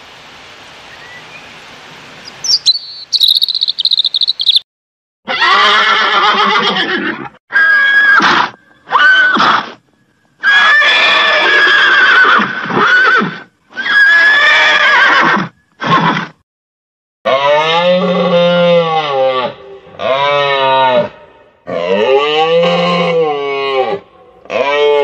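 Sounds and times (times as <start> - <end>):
horses neighing: 5.3 - 9.8, 10.4 - 16.2.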